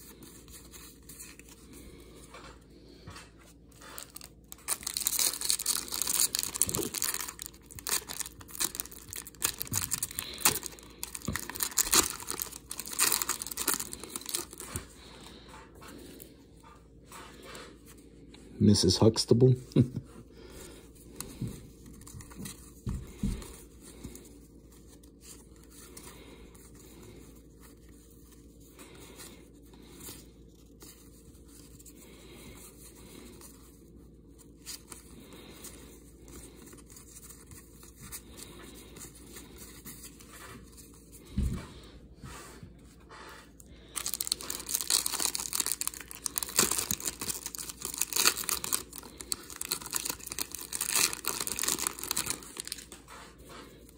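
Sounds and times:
handling trading cards: 0.0s - 16.3s, 43.5s - 53.9s
foil pack tearing open: 4.0s - 14.6s, 44.0s - 53.0s.

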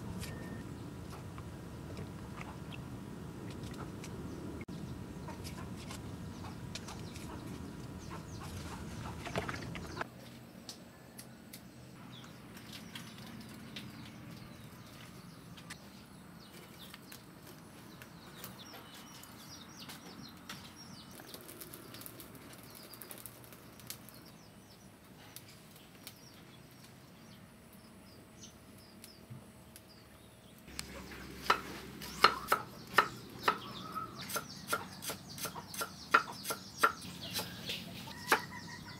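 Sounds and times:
cleaver chopping on wooden block: 31.4s - 33.7s.

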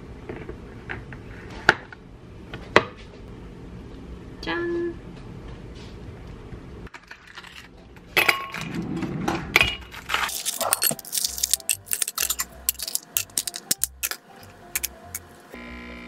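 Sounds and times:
ice cubes clinking in glass: 10.0s - 15.3s.

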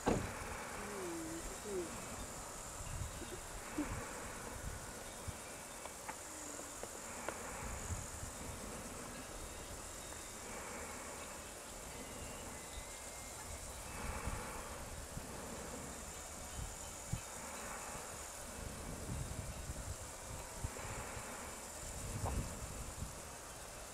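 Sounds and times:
wind rumble on microphone: 0.0s - 5.6s, 7.2s - 10.7s, 11.8s - 23.9s
insects chirring: 0.0s - 23.9s.

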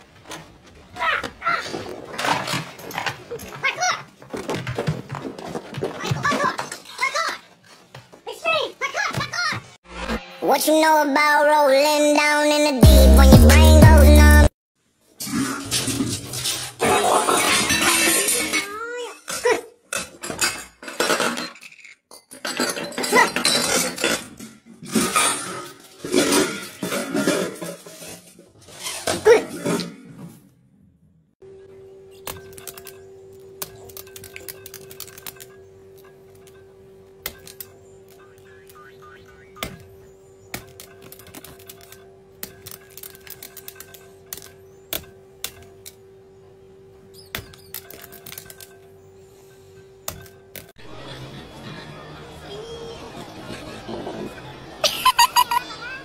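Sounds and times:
metal pots clattering: 15.3s - 18.7s.

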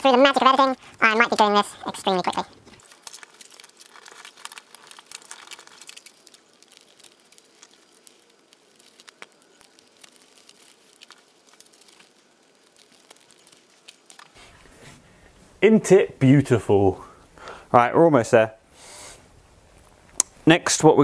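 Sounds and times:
bark crinkling and clicking: 1.2s - 14.4s.

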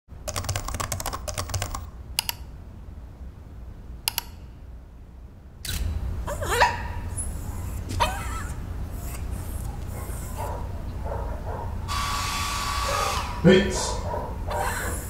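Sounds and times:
keyboard typing: 0.2s - 2.5s
single clicks: 2.2s - 2.5s, 4.1s - 4.4s
puppy whimpering: 6.3s - 10.8s, 13.8s - 15.0s.

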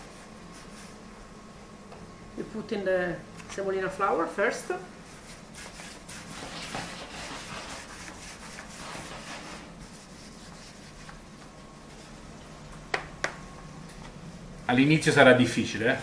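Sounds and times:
hands rubbing dough on board: 0.0s - 1.1s, 5.0s - 12.2s.

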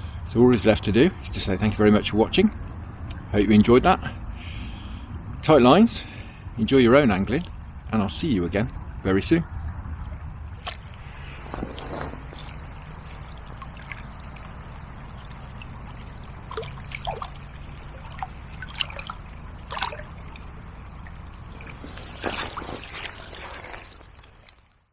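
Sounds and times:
small river flowing: 8.8s - 24.7s.

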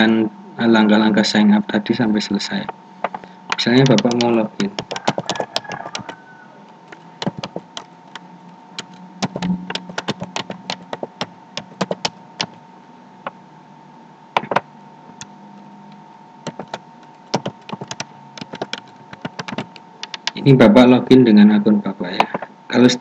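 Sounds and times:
faint steady hum: 0.0s - 23.0s
keyboard keystroke clicks: 3.0s - 6.1s, 16.5s - 20.4s.

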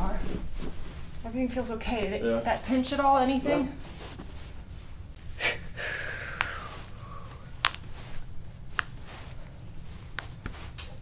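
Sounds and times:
breath through the nose: 5.4s - 7.5s.

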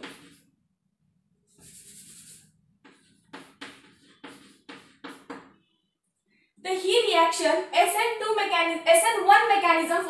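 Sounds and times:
chalk scratching on blackboard: 0.0s - 0.5s, 1.5s - 5.6s.

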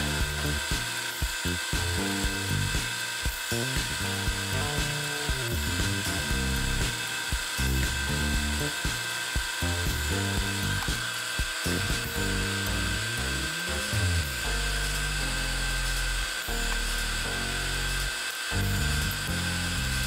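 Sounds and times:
background music: 0.0s - 20.0s
granulator dryer whirring and hissing: 0.0s - 20.0s.

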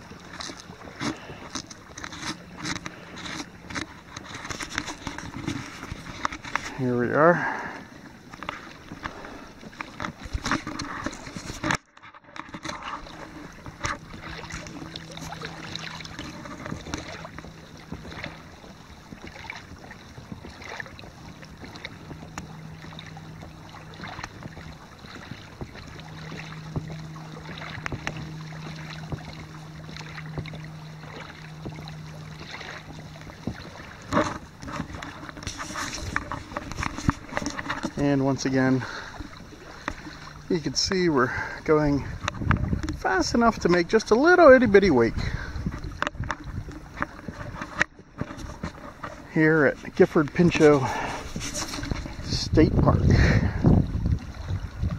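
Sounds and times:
small splashes: 0.0s - 11.8s, 12.4s - 54.9s
water lapping along kayak hull: 0.0s - 54.9s.

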